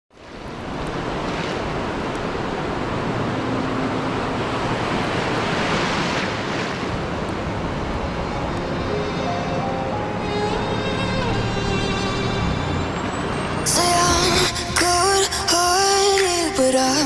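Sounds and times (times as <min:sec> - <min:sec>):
waves breaking on shore: 0:00.1 - 0:17.0.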